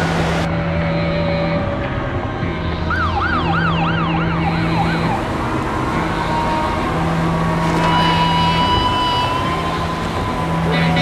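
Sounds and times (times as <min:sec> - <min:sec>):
steady rushing noise: 0:00.0 - 0:11.0
siren wailing: 0:02.6 - 0:05.3, 0:05.9 - 0:11.0.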